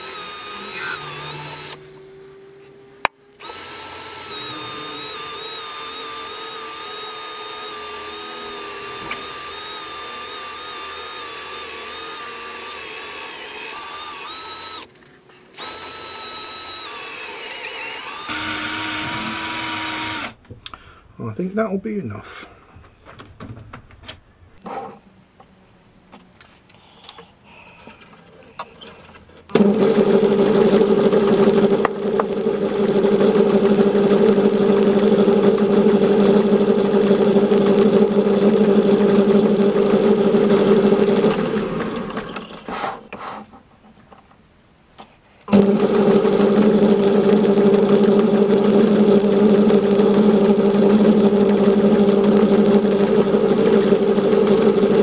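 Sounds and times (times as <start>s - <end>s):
metal lathe humming: 0.0s - 2.1s, 3.4s - 14.9s, 15.6s - 20.4s, 29.5s - 42.7s, 45.5s - 55.0s.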